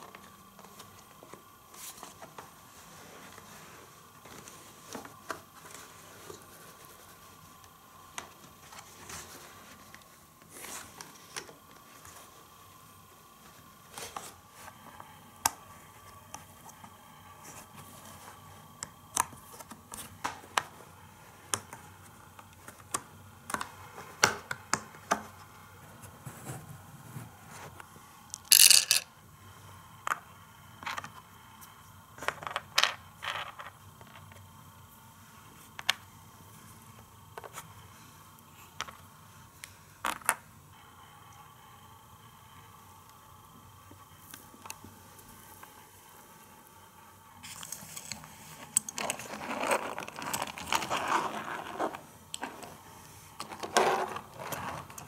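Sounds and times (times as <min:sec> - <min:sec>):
plastic track pieces clicking: 0:28.4 - 0:29.0
plastic pieces rattling: 0:28.4 - 0:29.1.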